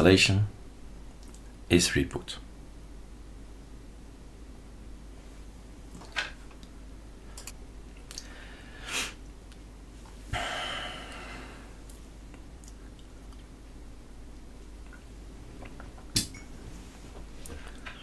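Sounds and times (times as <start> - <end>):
low steady hum: 0.0 - 18.0
breath-like noises: 10.3 - 11.8.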